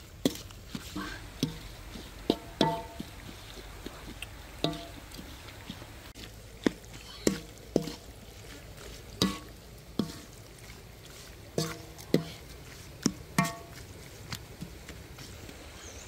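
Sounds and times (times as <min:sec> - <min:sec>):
metal utensil clanking against wok: 0:00.2 - 0:03.3, 0:04.6 - 0:05.2, 0:07.2 - 0:08.1, 0:09.1 - 0:10.4, 0:11.5 - 0:12.5, 0:13.1 - 0:13.8.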